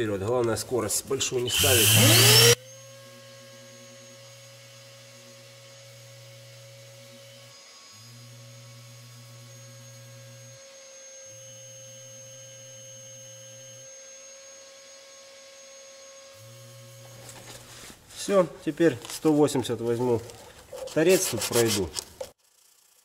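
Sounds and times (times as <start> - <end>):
orbital sander whining: 1.3 - 2.6.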